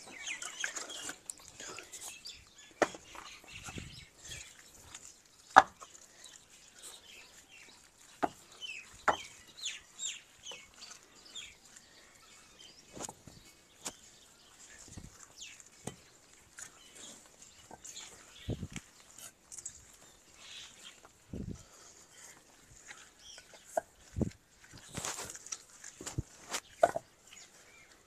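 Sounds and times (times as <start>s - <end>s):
faint chirping calls: 0.0s - 28.0s
bricks knocking together: 5.5s - 5.9s, 26.8s - 27.0s.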